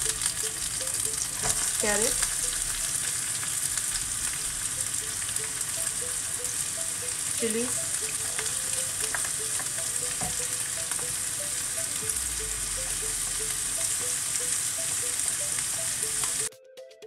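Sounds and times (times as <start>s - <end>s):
vegetables sizzling in oil: 0.0s - 16.5s.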